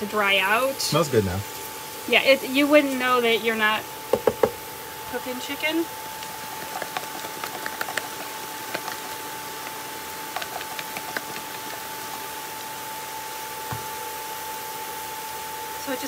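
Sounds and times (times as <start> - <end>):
food sizzling in a frying pan: 0.0 - 6.6, 8.2 - 16.0
cooktop fan noise: 0.0 - 16.0
seasoning shaker clicks: 6.2 - 11.9
soft thump: 13.7 - 14.0.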